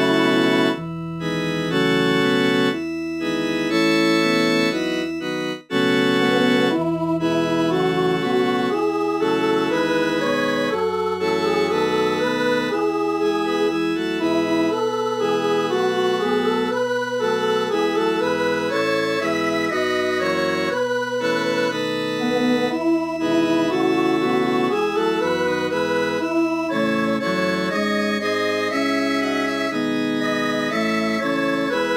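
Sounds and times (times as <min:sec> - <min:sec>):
synthesized organ chords: 0:00.0 - 0:31.9.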